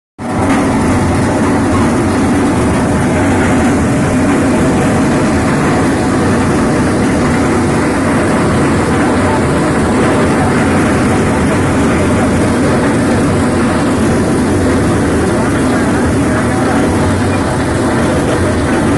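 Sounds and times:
maize thresher running: 0.2s - 18.9s.

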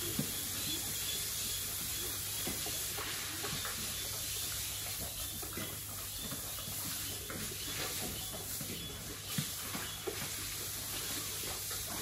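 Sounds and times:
steady hiss: 0.0s - 5.2s
pigs chomping and slurping: 0.0s - 12.0s.

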